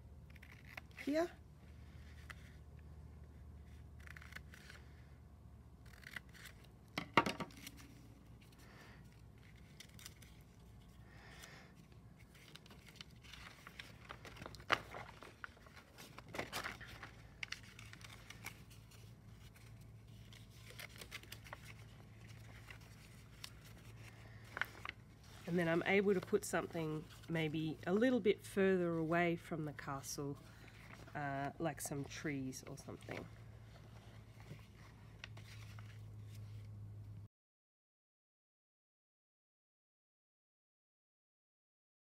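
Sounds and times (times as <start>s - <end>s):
paper rustling and creasing: 0.3s - 5.2s, 5.8s - 36.8s
scissors snipping paper: 5.8s - 6.7s.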